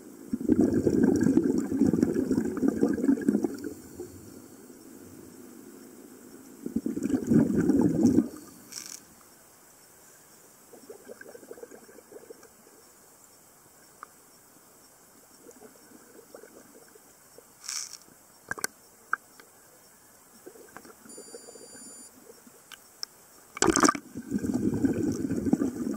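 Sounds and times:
water rushing and bubbling: 0:00.4 - 0:04.4, 0:06.6 - 0:08.5, 0:23.6 - 0:25.9
short hiss: 0:08.4 - 0:09.1, 0:17.6 - 0:18.1.

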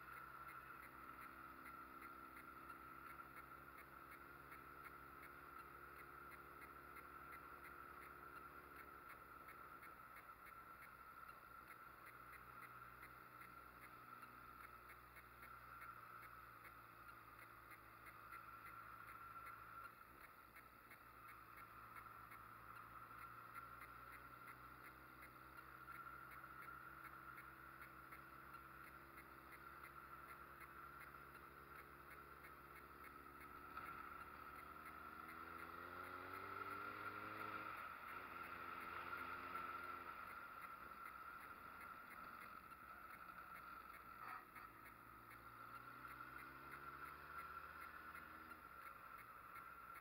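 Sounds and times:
motorcycle engine accelerating: 0:00.0 - 0:50.0.

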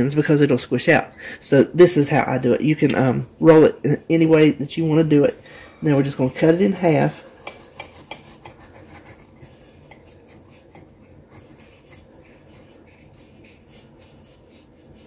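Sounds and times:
knife sawing through food: 0:07.2 - 0:15.0.

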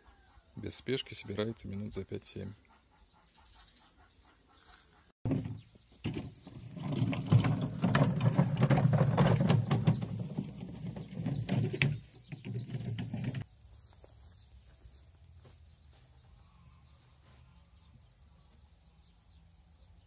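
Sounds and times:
wheeled box rattling over soil: 0:05.3 - 0:13.5.

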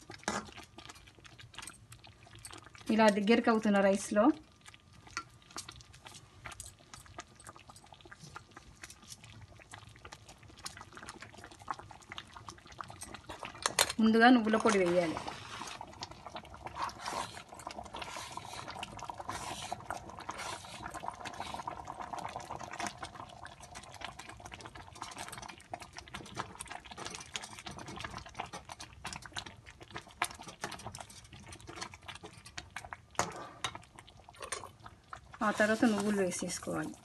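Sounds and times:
thick mixture bubbling and popping: 0:00.0 - 0:37.0
metal spoon stirring: 0:26.1 - 0:33.8.

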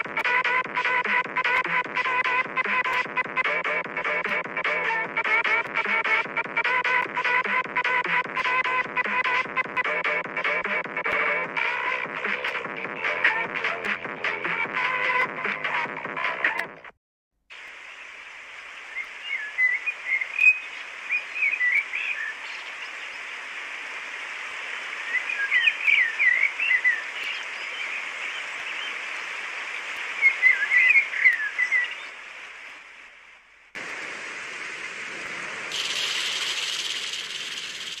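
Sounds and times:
rain hissing: 0:17.5 - 0:38.0
steady hiss: 0:17.5 - 0:38.0
small birds chirping: 0:17.6 - 0:32.4, 0:35.6 - 0:38.0.

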